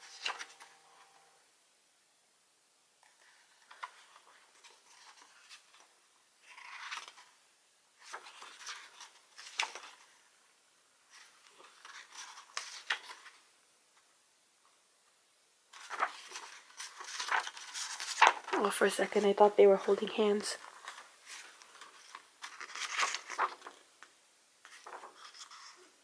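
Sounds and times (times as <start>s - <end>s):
paper rustling and sliding: 0.0s - 1.1s, 3.0s - 7.4s, 8.0s - 10.4s, 11.1s - 13.4s, 15.7s - 20.0s, 20.6s - 26.0s
page flapping over: 6.4s - 7.3s, 15.7s - 18.6s, 20.6s - 23.8s, 24.6s - 25.8s.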